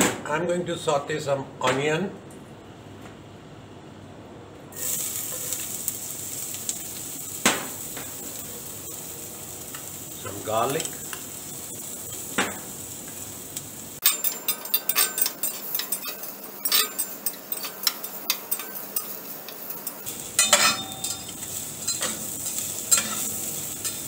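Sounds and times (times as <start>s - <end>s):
onion sizzling in oil: 4.7s - 24.0s
metal spatula scraping pan: 14.0s - 24.0s.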